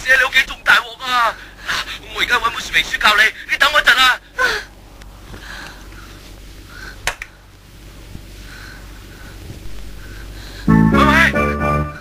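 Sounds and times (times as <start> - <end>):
low steady hum: 0.0 - 12.0
quiet film soundtrack: 9.6 - 12.0.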